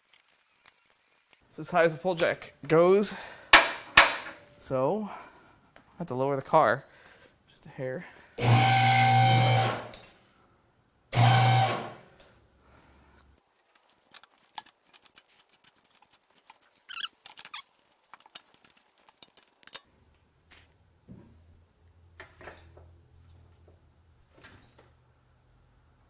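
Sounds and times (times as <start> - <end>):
hydraulic pump motor running: 8.4 - 9.9, 11.2 - 12.0.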